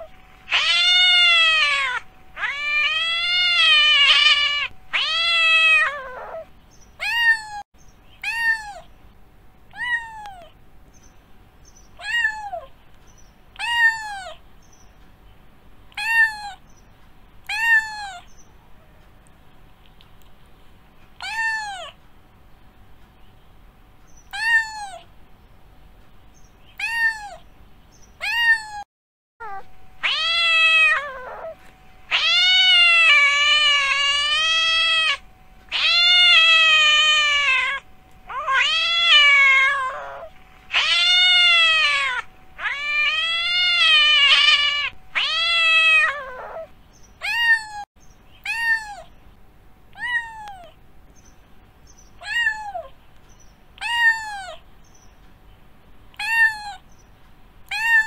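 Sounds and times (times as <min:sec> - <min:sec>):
cat meowing and yowling: 0:00.0 - 0:07.6, 0:08.2 - 0:08.9, 0:09.7 - 0:10.6, 0:12.0 - 0:12.7, 0:13.6 - 0:14.4, 0:15.9 - 0:16.6, 0:17.4 - 0:18.3, 0:21.2 - 0:22.0, 0:24.3 - 0:25.1, 0:26.8 - 0:27.4, 0:28.2 - 0:49.1, 0:49.9 - 0:50.8, 0:52.2 - 0:53.0, 0:53.8 - 0:54.6, 0:56.1 - 0:56.8, 0:57.7 - 0:58.0
faint steady hum: 0:00.0 - 0:28.8, 0:29.4 - 0:58.0.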